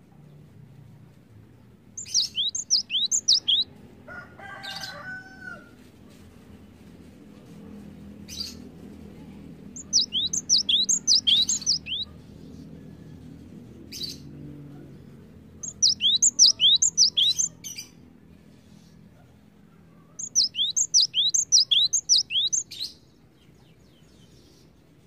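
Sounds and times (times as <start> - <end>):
bird singing whistled notes: 2.0 - 3.7, 9.8 - 12.1, 15.6 - 17.6, 20.2 - 23.0.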